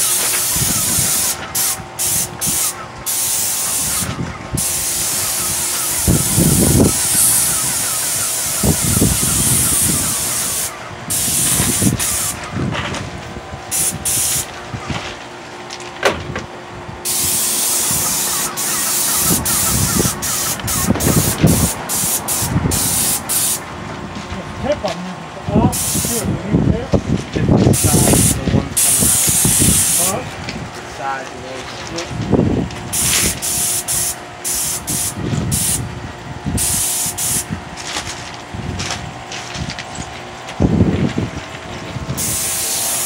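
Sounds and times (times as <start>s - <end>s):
paint spray gun hissing: 0.0s - 12.4s, 13.7s - 14.5s, 17.1s - 23.6s, 25.7s - 26.3s, 27.7s - 30.2s, 32.9s - 35.9s, 36.6s - 37.5s, 42.2s - 43.0s
low rumbling: 19.3s - 33.4s.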